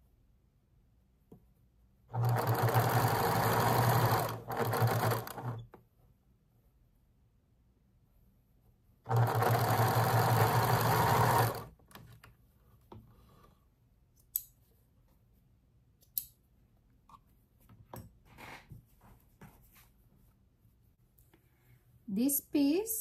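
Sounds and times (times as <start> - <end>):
sewing machine stitching: 2.1 - 5.7, 9.1 - 11.8.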